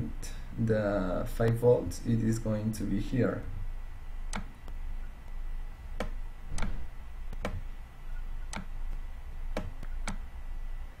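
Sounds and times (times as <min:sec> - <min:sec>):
low steady hum: 0:00.0 - 0:11.0
sharp mouse clicks: 0:04.3 - 0:04.8, 0:06.0 - 0:07.6, 0:08.4 - 0:08.7, 0:09.5 - 0:10.3.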